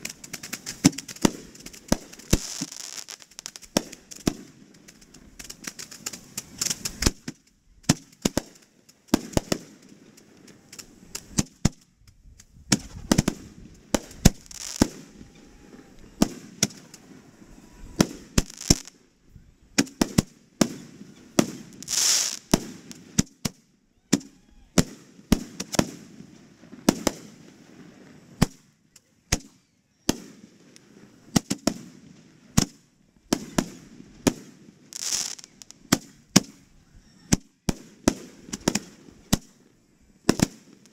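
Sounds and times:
firework hisses: 0:00.0 - 0:07.2, 0:12.7 - 0:19.0, 0:19.8 - 0:23.4, 0:33.4 - 0:36.7
fireworks bangs: 0:00.0 - 0:11.8, 0:12.7 - 0:19.1, 0:19.8 - 0:28.6, 0:30.1 - 0:36.7, 0:37.3 - 0:39.6, 0:40.3 - 0:40.9.

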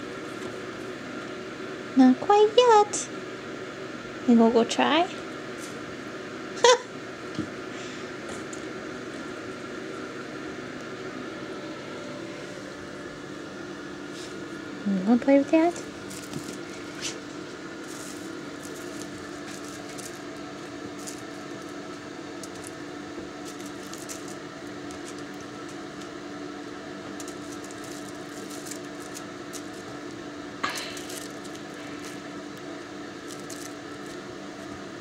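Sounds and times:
low room hum: 0:00.0 - 0:35.0
kittens playing with toys: 0:17.8 - 0:21.8, 0:23.4 - 0:25.8, 0:27.1 - 0:30.0.

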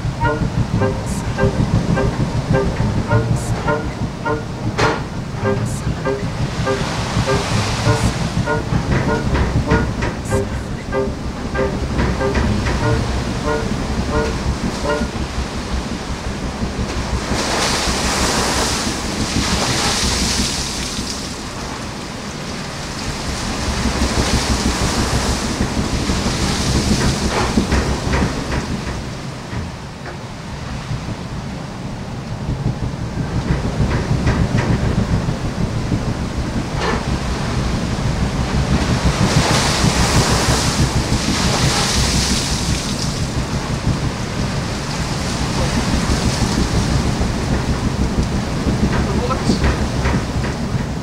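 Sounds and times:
short knocks: 0:00.0 - 0:15.3
sea rushing past a hull: 0:00.0 - 0:51.0
wind rumble on microphone: 0:00.0 - 0:51.0.

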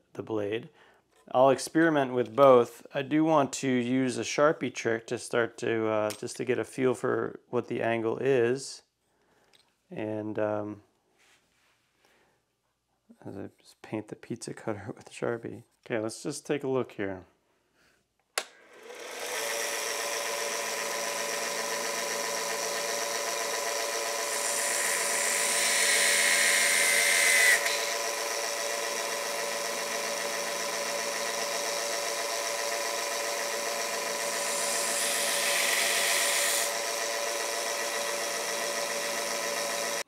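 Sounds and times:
belt sander motor humming: 0:18.6 - 0:40.0
metal wheel grinding on belt: 0:20.0 - 0:40.0.

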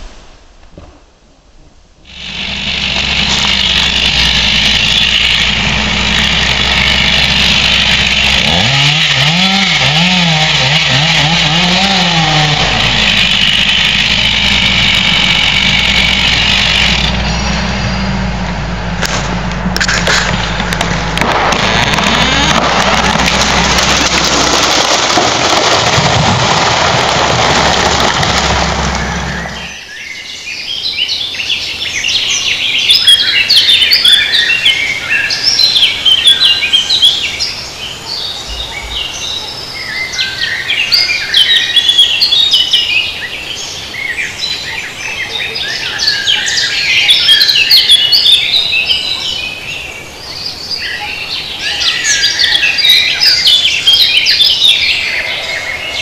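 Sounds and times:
birds singing and chirping: 0:17.0 - 0:18.1, 0:29.0 - 0:56.0.

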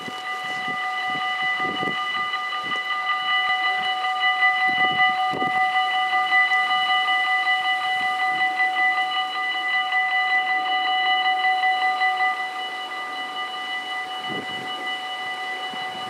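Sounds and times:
level crossing bells ringing: 0:00.0 - 0:16.0.

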